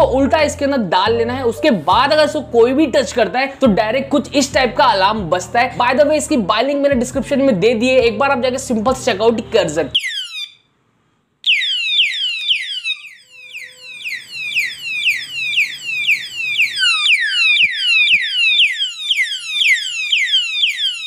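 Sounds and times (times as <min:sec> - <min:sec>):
electronic alarm siren whooping: 0:09.9 - 0:10.6, 0:11.4 - 0:21.0.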